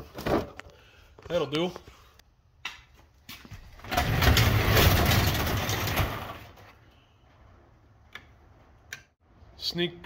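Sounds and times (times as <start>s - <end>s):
large door rolling open: 3.7s - 6.7s.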